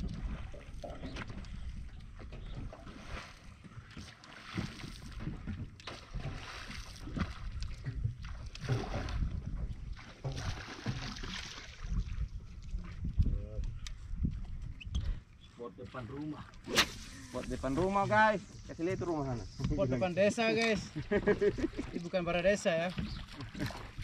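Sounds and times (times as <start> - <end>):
wind buffeting microphone: 0.0 - 3.2, 7.0 - 15.3
water slapping against boat hull: 0.0 - 13.4, 21.4 - 24.0.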